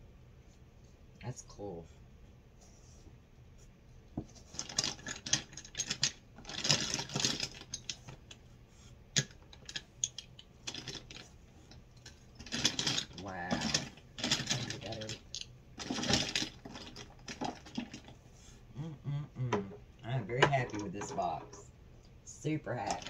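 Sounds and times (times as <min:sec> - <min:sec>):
items clicking and clattering: 0:04.2 - 0:08.4, 0:09.1 - 0:18.2, 0:20.2 - 0:21.7, 0:22.8 - 0:23.0.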